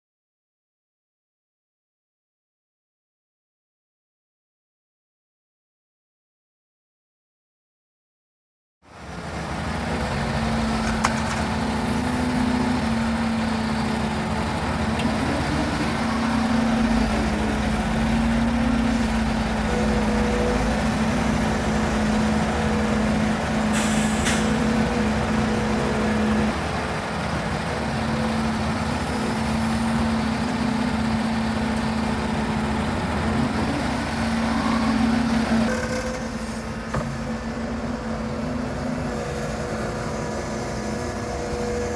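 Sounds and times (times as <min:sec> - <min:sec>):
excavator diesel engine running: 0:08.9 - 0:41.9.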